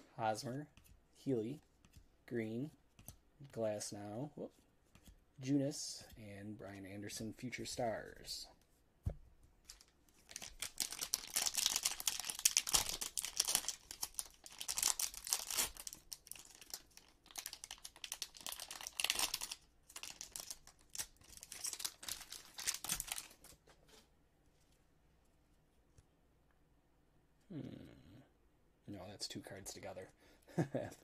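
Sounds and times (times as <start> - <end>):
plastic wrapper crinkling: 9.6 - 23.6.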